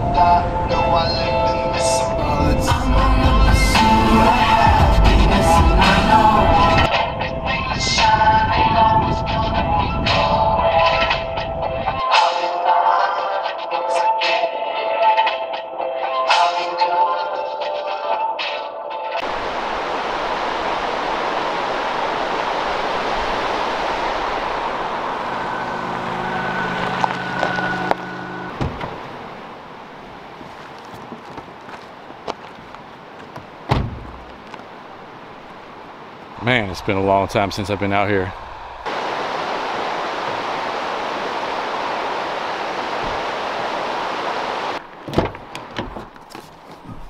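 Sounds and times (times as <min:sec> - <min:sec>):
rocky creek rushing: 0:19.2 - 0:45.6
car engine idling: 0:24.5 - 0:29.4.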